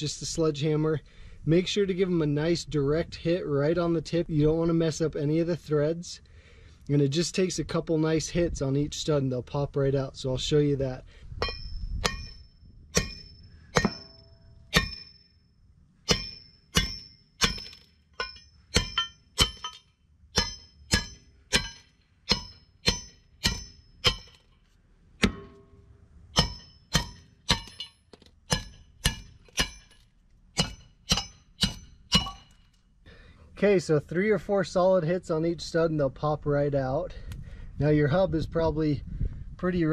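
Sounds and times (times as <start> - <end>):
sledgehammer blows on metal: 11.3 - 15.2, 16.0 - 24.5, 25.2 - 30.0, 30.6 - 32.7.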